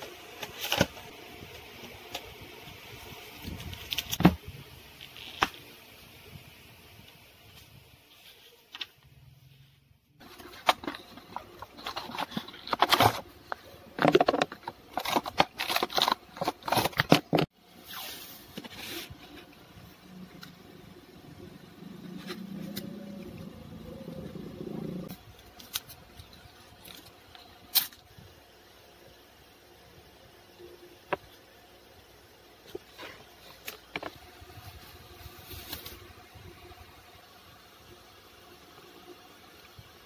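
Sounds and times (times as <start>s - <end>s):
plastic packaging crinkling: 10.2s - 17.5s.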